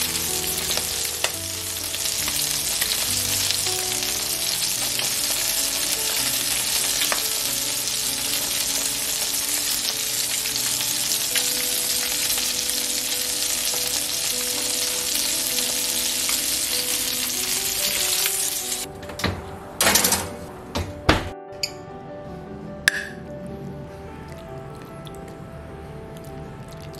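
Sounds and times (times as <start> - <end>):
fish sizzling in a frying pan: 0.0 - 18.9
background music: 0.0 - 26.9.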